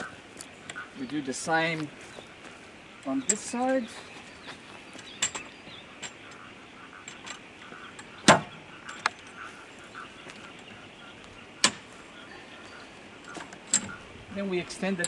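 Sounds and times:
pole knocks and clip clicks: 7.0s - 9.2s.

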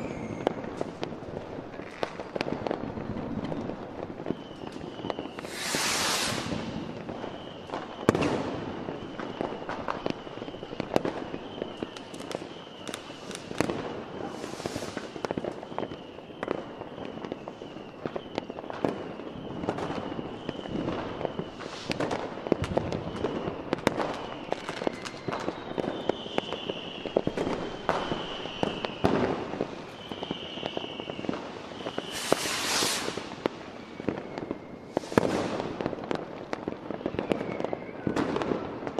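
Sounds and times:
hissing crackle: 4.6s - 7.7s, 11.2s - 16.0s, 19.9s - 25.6s, 26.2s - 35.9s
firework shell bursts: 5.4s - 6.9s, 32.0s - 33.3s.

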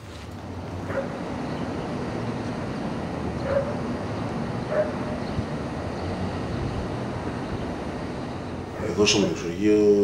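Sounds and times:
street noise: 0.0s - 10.0s
dog barking: 0.8s - 1.2s, 3.4s - 3.9s, 4.7s - 5.2s.

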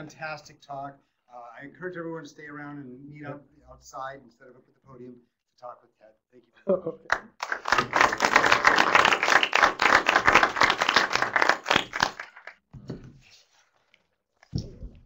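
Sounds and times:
audience applauding: 7.1s - 12.6s.

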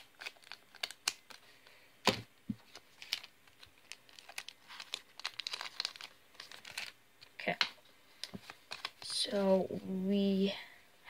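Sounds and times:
foil wrapper crinkling: 0.0s - 1.5s, 2.7s - 7.0s, 8.4s - 9.1s.

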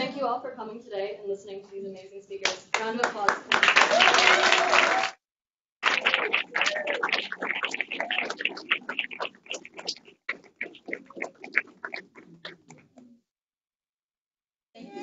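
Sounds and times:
audience applauding: 3.1s - 5.2s, 5.8s - 9.6s.

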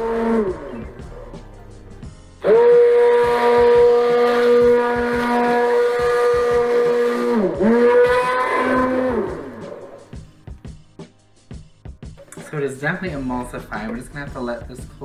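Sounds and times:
immersion blender motor whine: 0.0s - 1.3s, 2.4s - 10.2s.

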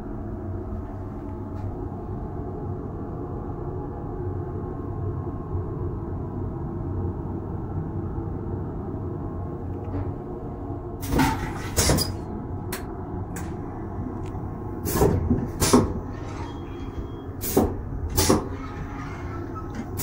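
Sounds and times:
train rumbling: 0.0s - 20.0s.

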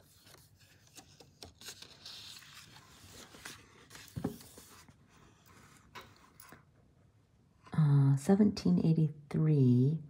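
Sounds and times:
book page turning: 0.0s - 6.2s
paper rustling and sliding: 0.0s - 6.4s.

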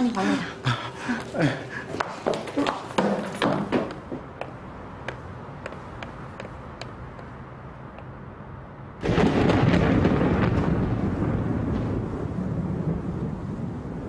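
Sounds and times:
deep thunder rumble: 9.0s - 14.0s
thunderclap: 9.0s - 14.0s.

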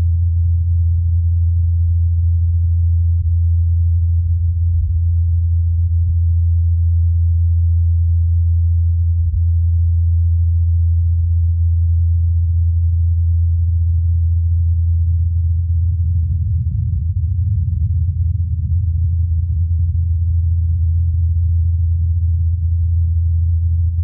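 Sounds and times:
rotors low hum: 15.0s - 24.0s.

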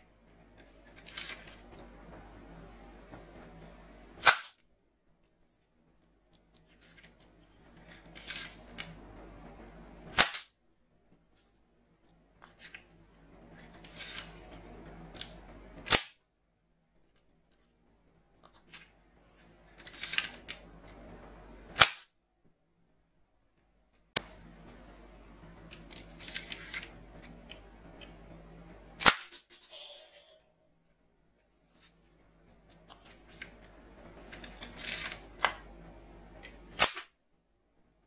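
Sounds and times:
toy bow shot snap: 4.2s - 4.6s, 10.1s - 10.5s, 15.8s - 16.2s, 21.8s - 22.1s, 29.0s - 29.7s, 36.8s - 37.1s.

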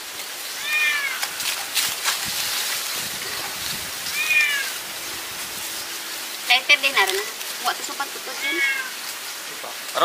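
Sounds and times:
cat meowing: 0.6s - 1.4s, 4.1s - 4.8s, 8.3s - 9.0s.

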